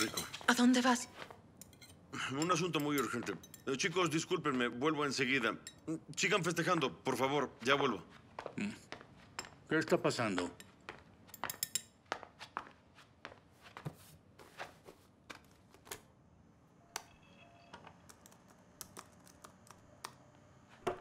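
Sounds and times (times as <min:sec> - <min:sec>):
laptop keyboard typing: 0:18.0 - 0:20.2.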